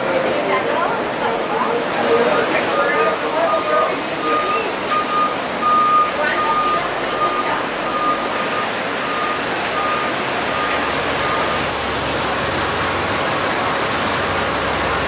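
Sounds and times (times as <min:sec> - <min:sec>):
rushing background noise: 0:00.0 - 0:15.0
reversing beeper: 0:02.0 - 0:11.8.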